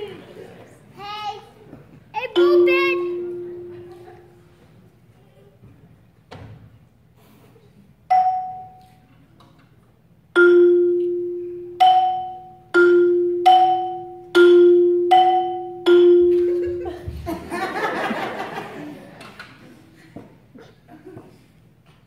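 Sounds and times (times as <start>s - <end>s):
marimba notes: 2.2s - 4.6s, 8.1s - 9.0s, 10.3s - 17.1s.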